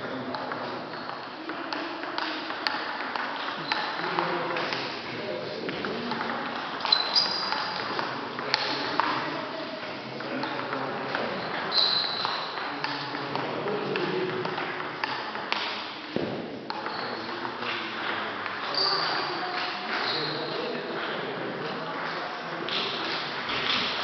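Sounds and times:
table tennis balls clicking: 0.2 - 4.9, 5.7 - 9.3, 10.2 - 20.1
shoes squeaking: 6.8 - 7.8, 11.3 - 12.5, 16.9 - 17.3, 18.7 - 20.5.

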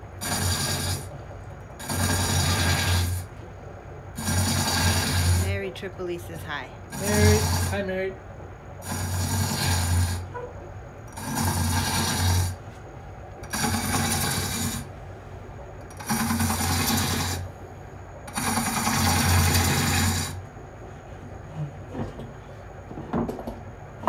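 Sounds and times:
steel edge rasping on sharpener: 1.8 - 3.3, 4.2 - 5.5, 6.9 - 7.8, 8.8 - 10.3, 11.1 - 12.6, 13.4 - 14.9, 15.9 - 17.4.

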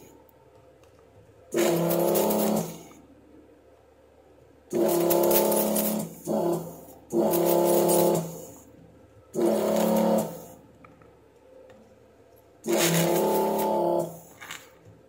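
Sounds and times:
desoldering pump motor hum: 1.5 - 3.0, 4.7 - 8.7, 9.3 - 10.6, 12.6 - 14.5.

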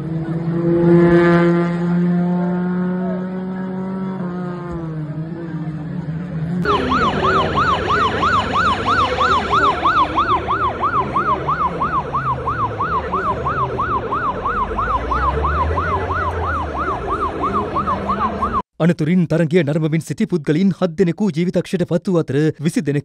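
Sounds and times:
vehicle engine rumbling: 0.0 - 18.6
ambulance siren yelping: 6.6 - 18.6.

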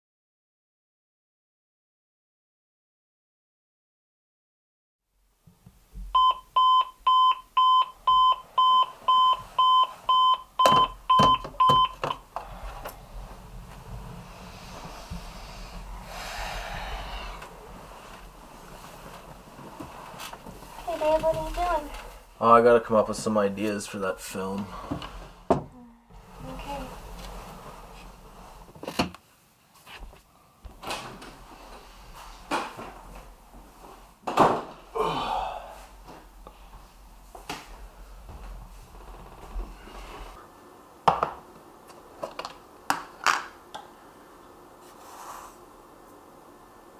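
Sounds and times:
alarm clock beeping: 6.2 - 12.2.

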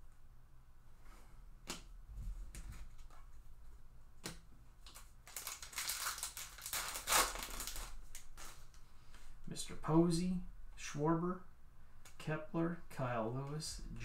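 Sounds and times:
card pack wrapper tearing: 4.9 - 8.6.

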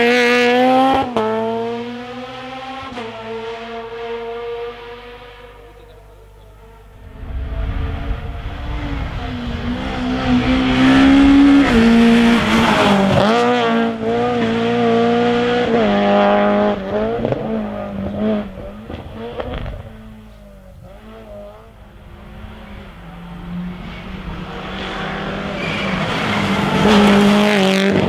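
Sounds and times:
rally car engine revving: 0.0 - 28.0.

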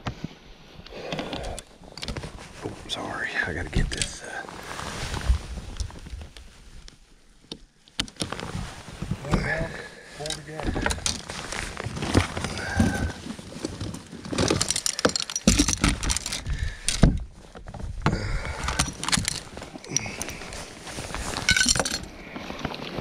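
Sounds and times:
gear clinking and rattling: 10.2 - 17.3, 18.4 - 22.2.

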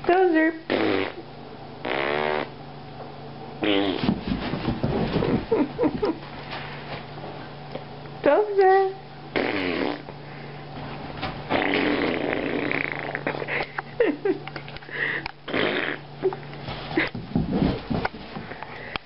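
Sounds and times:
dog noisy breathing: 14.8 - 15.4.

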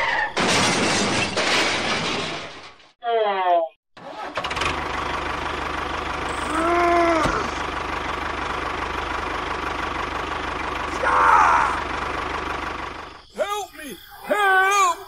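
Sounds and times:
tractor engine running: 4.0 - 13.4.

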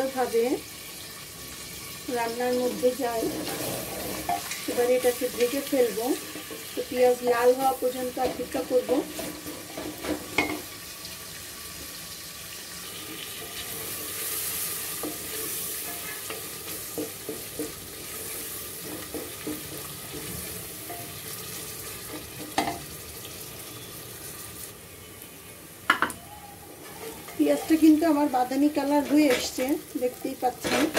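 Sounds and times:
onions sizzling in oil: 0.0 - 30.9
wooden spatula scraping pot: 3.1 - 6.9, 13.4 - 22.6, 26.8 - 29.8, 30.4 - 30.9.

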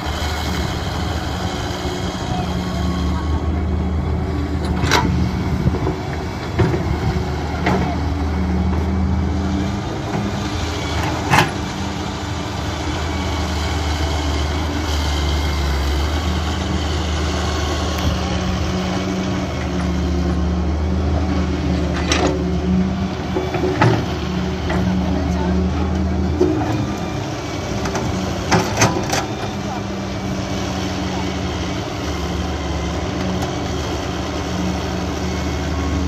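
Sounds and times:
diesel engines running: 0.0 - 36.0
excavator digging soil: 0.0 - 36.0.

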